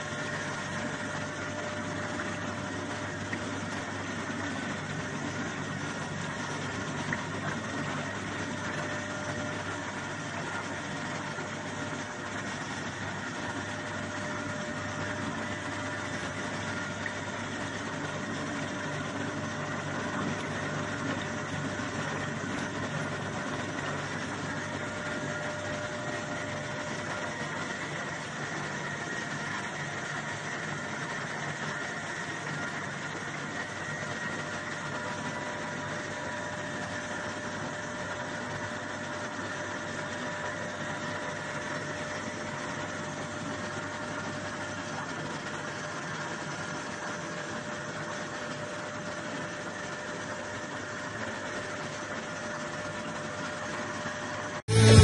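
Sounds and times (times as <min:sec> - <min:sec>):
washing machine motor humming: 0:00.0 - 0:55.0.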